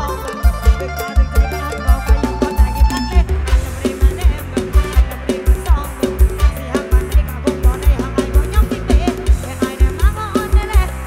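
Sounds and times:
electronic keyboard melody: 0.0s - 11.0s
heavy kick drum beat: 0.0s - 11.0s
woman singing into microphone: 2.4s - 11.0s.

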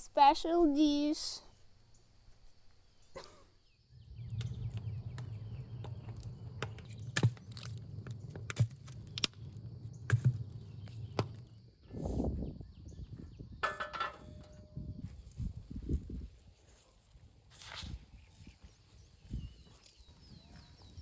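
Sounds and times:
wood fire crackling: 4.2s - 11.1s.

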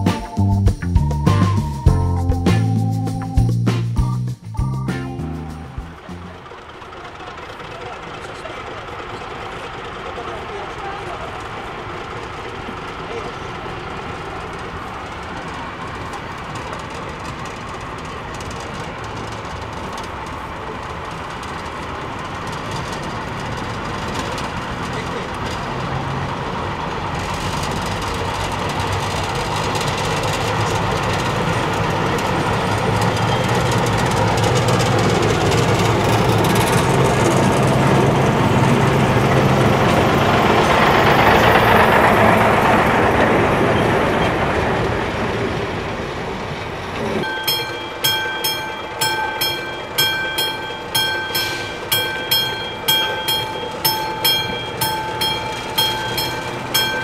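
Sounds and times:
diesel railcar engine passing: 0.0s - 57.0s
level crossing warning bell ringing: 26.4s - 44.4s, 47.2s - 57.0s.

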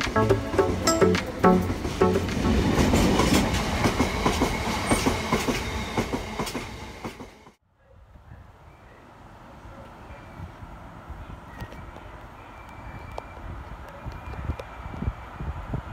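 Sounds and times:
freight train rolling past: 0.0s - 7.6s.

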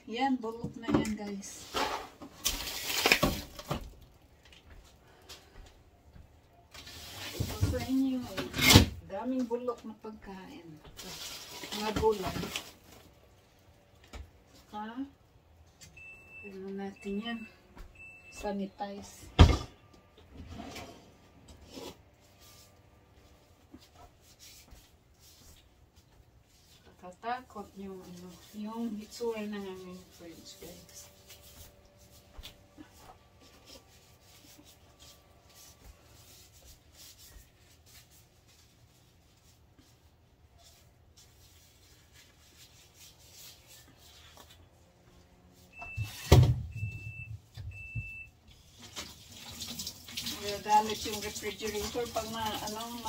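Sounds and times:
refrigerator door alarm beeping: 15.9s - 19.2s, 45.7s - 48.4s
cleaning wipe rustling: 21.8s - 46.3s.

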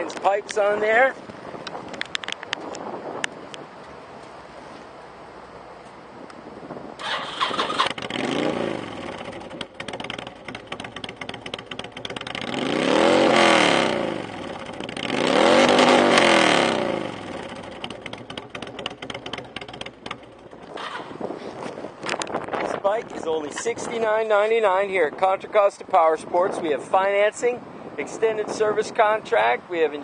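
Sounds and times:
motorcycle starter cranking: 7.0s - 12.5s, 17.4s - 21.2s
motorcycle engine revving and idling: 7.0s - 22.8s.

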